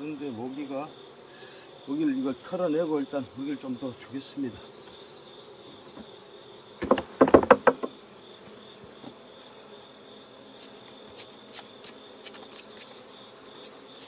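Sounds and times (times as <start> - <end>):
bees buzzing: 0.0 - 14.0
wooden knocks of hive frame: 4.8 - 9.4.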